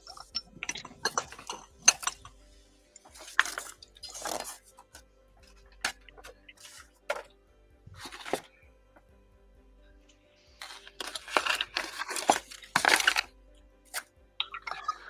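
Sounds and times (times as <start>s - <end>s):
glass jar clinking and knocking: 0.0s - 2.4s, 14.4s - 15.0s.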